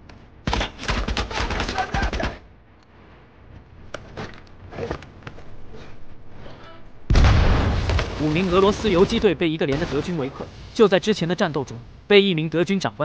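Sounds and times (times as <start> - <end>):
grenade explosion: 7.1 - 11.2.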